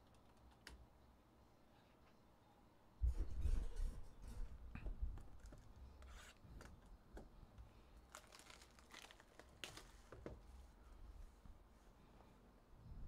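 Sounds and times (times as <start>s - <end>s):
wrapping crinkling: 8.0s - 10.3s.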